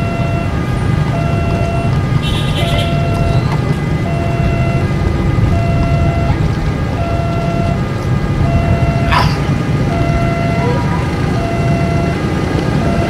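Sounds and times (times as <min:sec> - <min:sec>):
level crossing two-tone siren: 0:00.0 - 0:09.2, 0:09.8 - 0:13.0
low rumble of train: 0:00.0 - 0:13.0.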